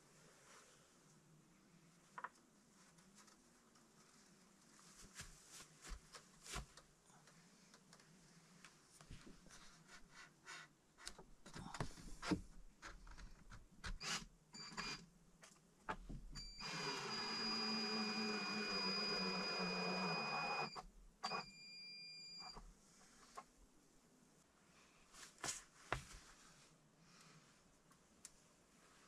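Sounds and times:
cordless drill running: 0:16.6 - 0:20.7.

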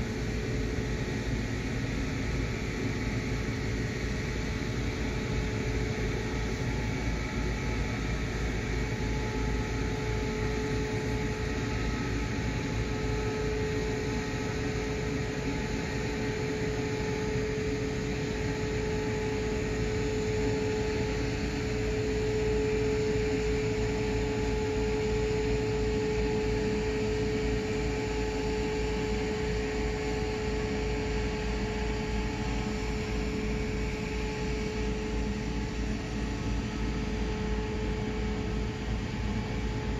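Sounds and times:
machine hum with held tone: 0:00.0 - 0:39.9.

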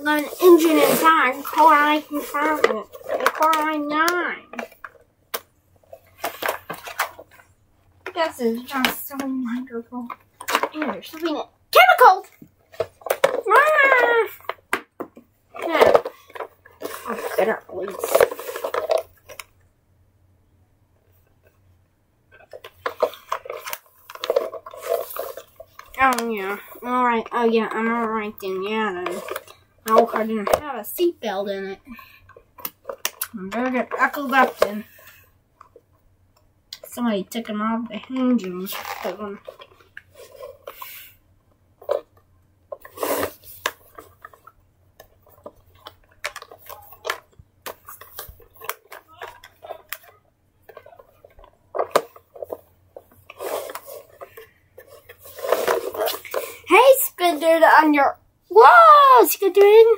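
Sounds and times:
strap rustling: 0:42.7 - 0:44.4, 0:45.2 - 0:56.7.

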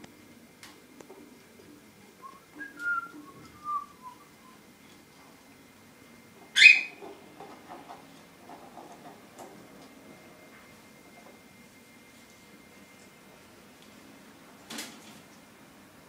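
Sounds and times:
cockatiels chirping: 0:06.6 - 0:07.0.

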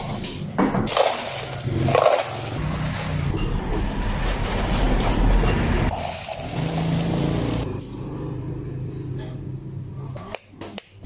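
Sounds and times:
ice cubes clattering in plastic cup: 0:00.9 - 0:03.3.

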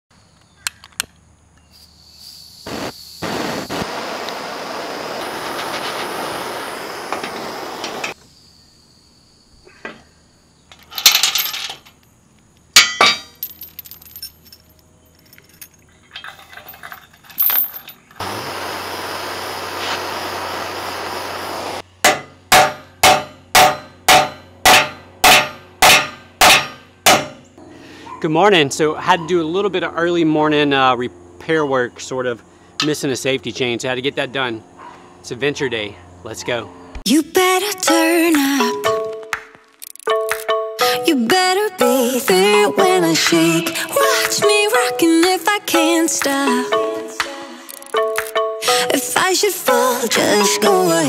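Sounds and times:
steady hiss: 0:01.8 - 0:08.2, 0:18.2 - 0:21.8
metal clanks: 0:10.7 - 0:12.0, 0:12.8 - 0:18.2, 0:22.0 - 0:27.4
chain clinking: 0:10.7 - 0:12.2, 0:12.8 - 0:18.2
hammer blows on metal: 0:22.0 - 0:27.7.

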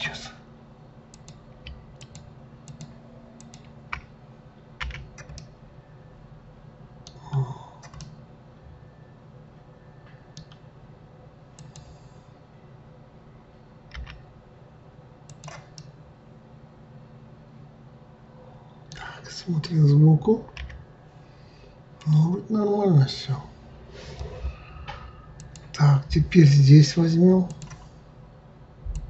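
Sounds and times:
low steady hum: 0:00.0 - 0:29.0
keyboard and mouse clicking: 0:01.1 - 0:04.1, 0:04.8 - 0:05.5, 0:07.0 - 0:08.2, 0:10.4 - 0:10.6, 0:11.6 - 0:11.9, 0:13.9 - 0:14.2, 0:15.3 - 0:15.9, 0:20.5 - 0:20.8, 0:25.4 - 0:25.8, 0:27.5 - 0:27.8.

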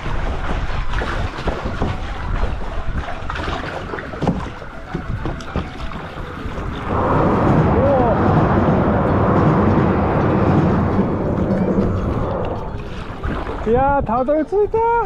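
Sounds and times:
paddle strokes splashing water: 0:00.0 - 0:14.0
wind on microphone: 0:00.0 - 0:15.0
passing train rumble: 0:06.1 - 0:13.7.

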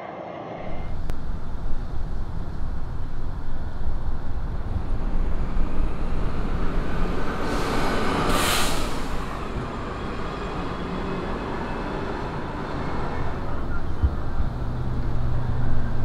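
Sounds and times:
city traffic rumbling: 0:00.6 - 0:16.0
bus air brakes hissing: 0:06.0 - 0:11.4.

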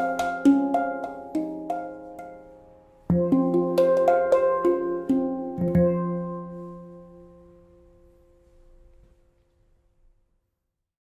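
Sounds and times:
handpan notes ringing: 0:00.0 - 0:08.7.

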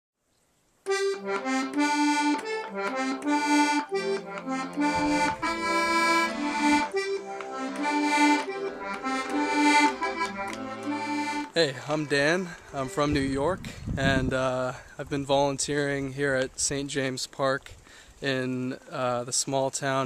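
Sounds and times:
quick melody of short notes: 0:00.9 - 0:13.4
low sustained bass notes: 0:02.6 - 0:13.6.

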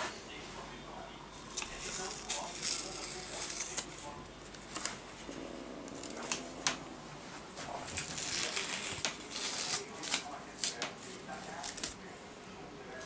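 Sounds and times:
paper notes rustling: 0:07.6 - 0:12.0.

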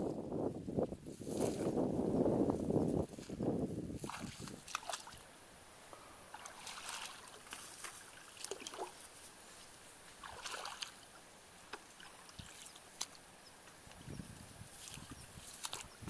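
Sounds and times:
bare feet wading through water: 0:03.0 - 0:05.3, 0:06.2 - 0:13.3, 0:14.7 - 0:16.0.

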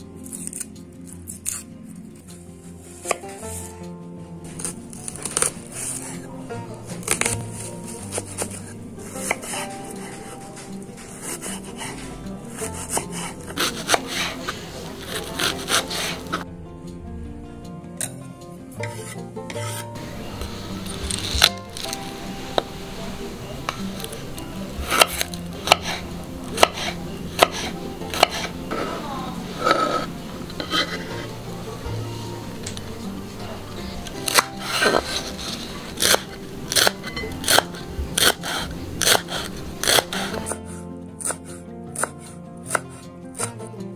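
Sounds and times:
knife blade scraping a board: 0:00.2 - 0:01.7, 0:04.5 - 0:06.3, 0:07.0 - 0:16.4, 0:18.8 - 0:22.1, 0:24.8 - 0:31.2, 0:33.8 - 0:43.6
knife chopping on wooden board: 0:07.0 - 0:16.4, 0:24.8 - 0:28.9, 0:34.1 - 0:40.6, 0:41.2 - 0:43.6.

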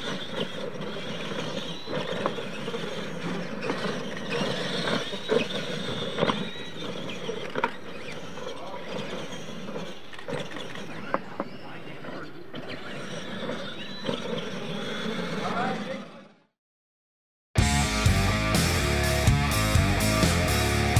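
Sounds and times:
toy trucks knocking and clattering: 0:00.0 - 0:14.4
electric motors whining: 0:00.0 - 0:16.4, 0:17.6 - 0:20.9.

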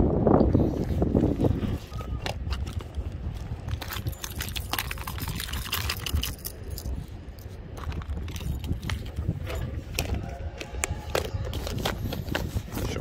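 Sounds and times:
wind rumble on microphone: 0:00.0 - 0:13.0
metal lures clinking in plastic box: 0:02.5 - 0:10.2.

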